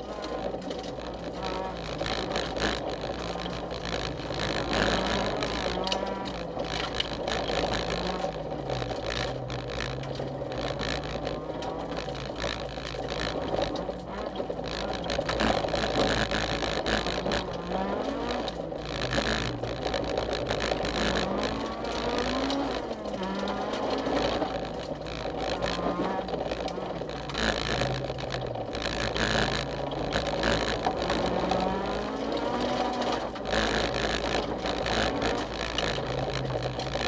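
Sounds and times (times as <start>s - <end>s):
car engine revving: 0.0s - 37.0s
tyres on loose gravel: 0.0s - 37.0s.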